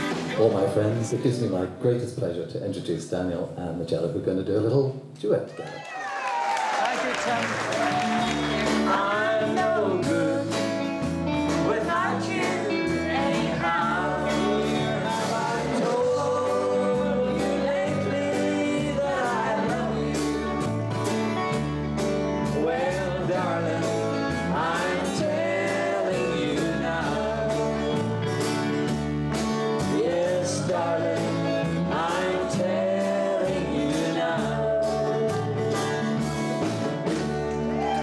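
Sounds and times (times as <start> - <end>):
live band playing upbeat song: 0.0 - 2.3, 6.8 - 38.0
man and woman singing duet: 7.8 - 20.7, 22.4 - 28.2, 29.9 - 35.9.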